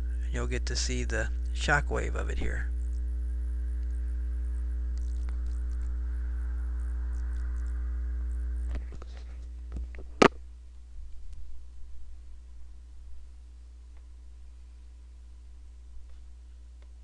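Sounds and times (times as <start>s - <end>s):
steady electrical hum: 0.0s - 17.0s
sharp clicks: 4.9s - 5.9s.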